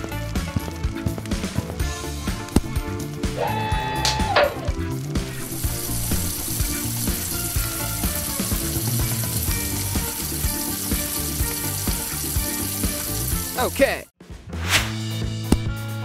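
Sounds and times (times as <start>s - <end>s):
background music with beat: 0.0s - 16.0s
water spray hissing: 2.1s - 13.8s.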